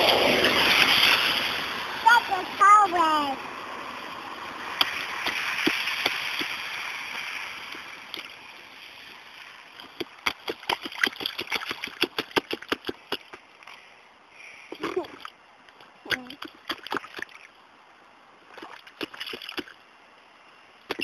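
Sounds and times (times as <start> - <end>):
boots splashing in puddle: 4.6 - 8.3, 9.8 - 13.4, 16.4 - 17.5.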